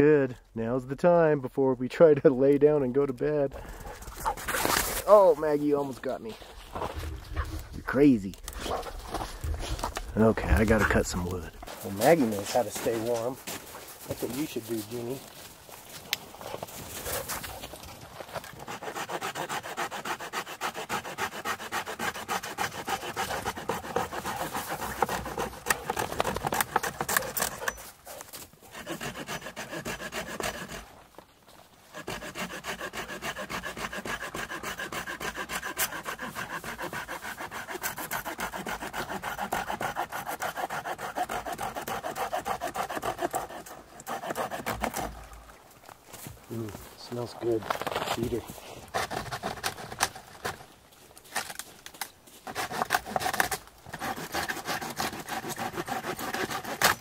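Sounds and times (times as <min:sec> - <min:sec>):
hand saw cutting branch: 0:04.0 - 0:06.2, 0:09.8 - 0:15.2, 0:18.3 - 0:31.0, 0:31.9 - 0:45.4, 0:47.8 - 0:50.6, 0:52.4 - 0:57.0.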